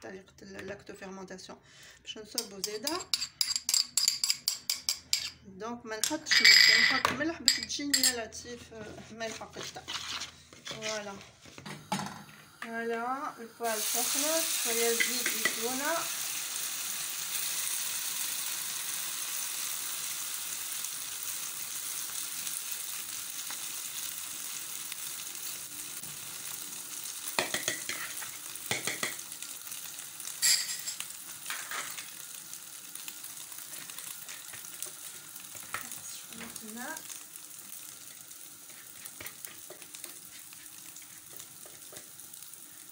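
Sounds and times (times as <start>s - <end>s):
fork scraping pan: 9.2s - 11.2s, 27.4s - 28.3s, 38.7s - 42.0s
omelette sizzling in frying pan: 9.8s - 42.9s.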